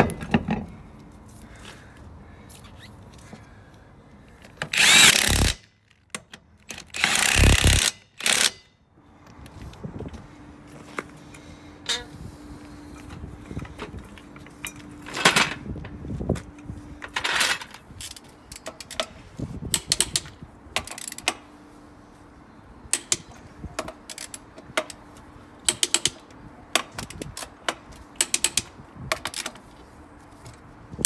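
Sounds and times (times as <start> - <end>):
socket ratchet clicking: 4.7 - 5.6, 19.7 - 21.4, 25.6 - 26.3, 28.2 - 28.7.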